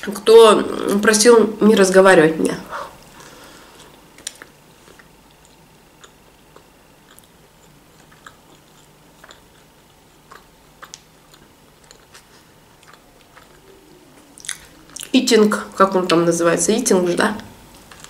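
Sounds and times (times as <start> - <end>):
closed-mouth chewing: 3.0 - 16.2, 17.6 - 18.0.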